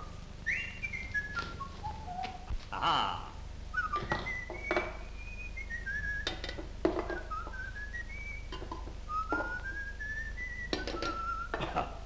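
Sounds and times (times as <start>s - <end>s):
man whistling a tune: 0.4s - 2.4s, 3.7s - 11.6s.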